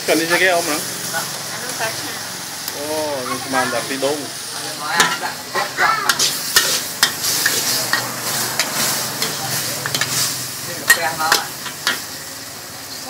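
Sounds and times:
food sizzling in a wok: 0.0s - 13.0s
metal ladles scraping and clanking: 4.9s - 12.2s.

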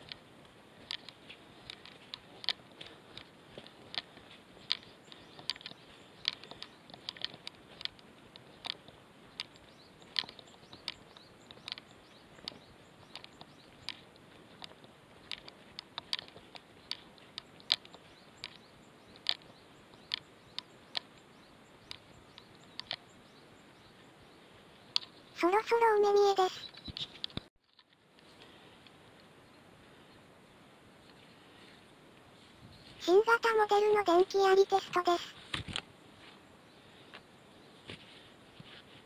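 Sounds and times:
footsteps crunching on stony soil: 0.0s - 19.6s.

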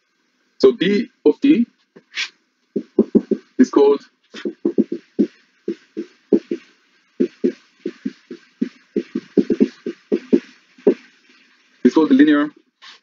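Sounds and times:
whiteboard marker squeaking: 2.2s - 3.5s, 4.4s - 6.6s, 7.2s - 11.5s.

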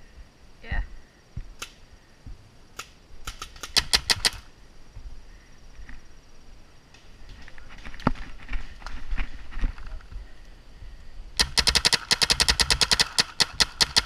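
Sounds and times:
paintball marker shots: 11.4s - 14.0s.

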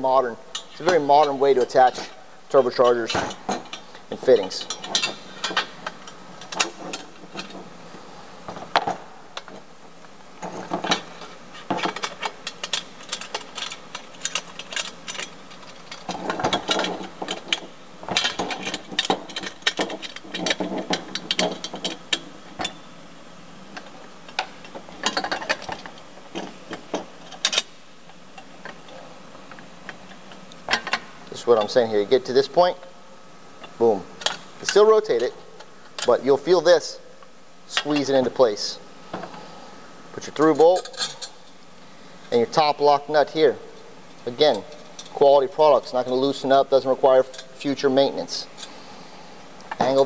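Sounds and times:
metal clicking and clinking: 2.5s - 7.6s, 10.4s - 22.8s, 23.8s - 27.7s.

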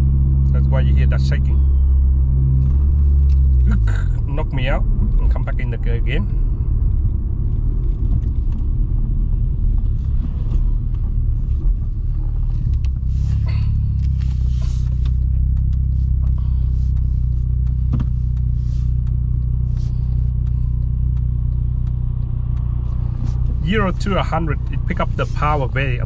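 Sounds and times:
car engine and road rumble: 0.0s - 26.0s
faint clicks: 14.0s - 23.6s.

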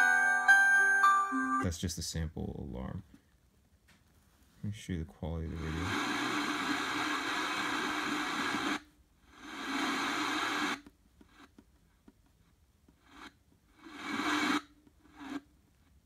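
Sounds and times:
radio static hiss: 4.8s - 10.9s, 13.1s - 14.6s.

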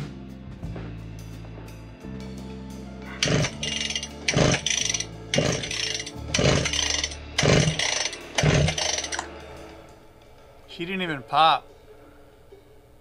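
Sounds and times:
engine turning over without firing: 3.2s - 9.3s
recoil starter pulls: 3.2s - 9.3s.

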